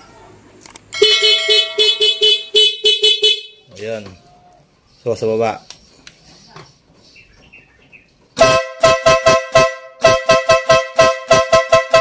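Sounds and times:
motorcycle horn two-tone beeps: 1.0 - 3.7, 8.4 - 12.0.

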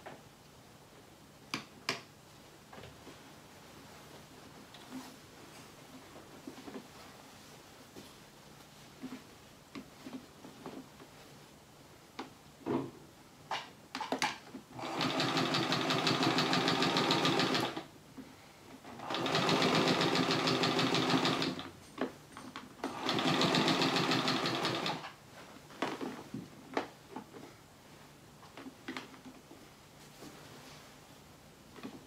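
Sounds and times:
sewing machine stitching: 14.7 - 17.9, 18.9 - 21.7, 22.8 - 25.1.

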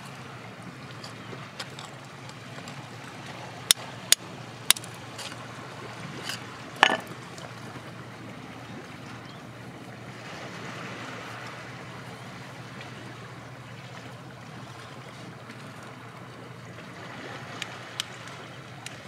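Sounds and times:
metal pick scraping rock: 1.0 - 2.9, 4.7 - 5.5, 6.1 - 7.1.

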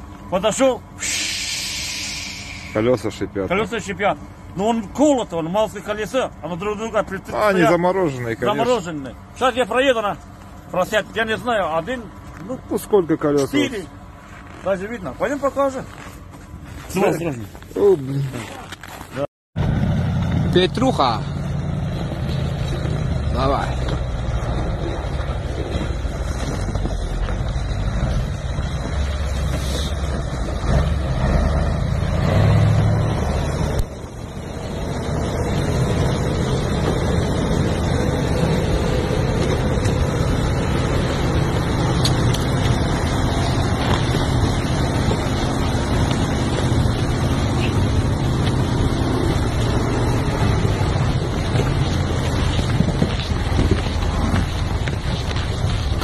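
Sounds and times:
truck diesel engine under load: 0.0 - 19.0, 19.6 - 56.0
slush churning around wheels: 19.8 - 56.0
wind buffeting microphone: 33.1 - 56.0.

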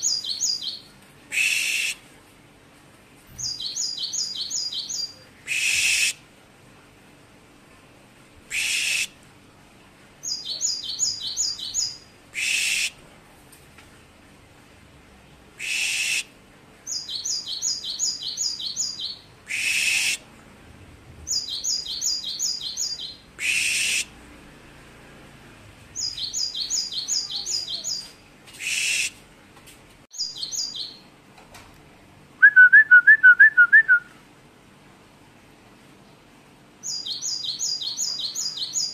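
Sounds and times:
bird singing: 0.0 - 0.9, 3.4 - 6.0, 10.2 - 12.9, 16.9 - 20.2, 21.3 - 24.0, 26.0 - 28.9, 30.2 - 31.1, 36.8 - 38.9.

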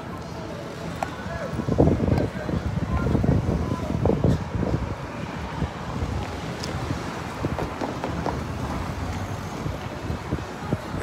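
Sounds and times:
faint city street background: 0.0 - 11.0
wind buffeting microphone: 1.3 - 11.0.

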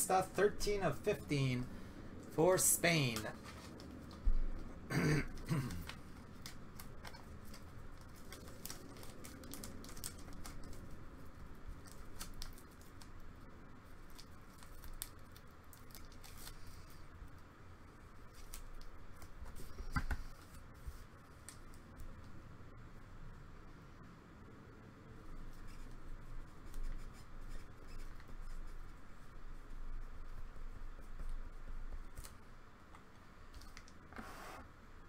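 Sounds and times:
plastic card sleeve crinkling: 5.9 - 11.0, 14.0 - 17.0.

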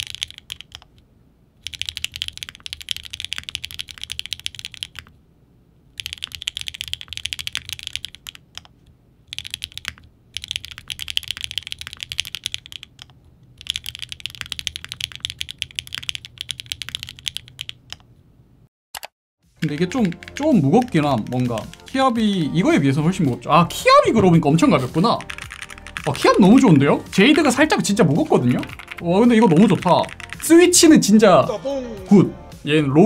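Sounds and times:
keyboard keystroke clacks: 19.0 - 21.9, 28.4 - 30.5.

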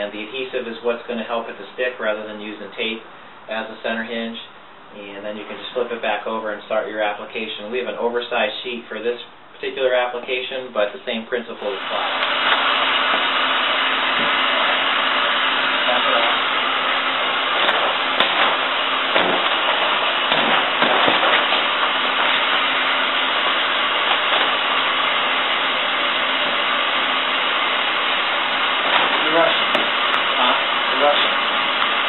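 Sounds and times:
heat gun blower rushing: 8.4 - 32.0.

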